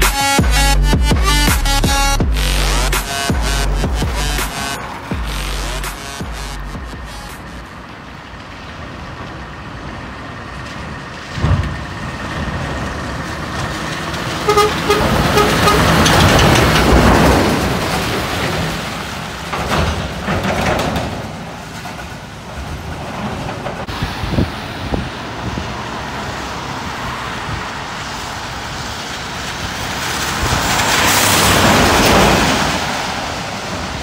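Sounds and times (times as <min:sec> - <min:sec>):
lorry engine: 0:00.0 - 0:19.3
tyre spray on wet road: 0:02.3 - 0:34.0.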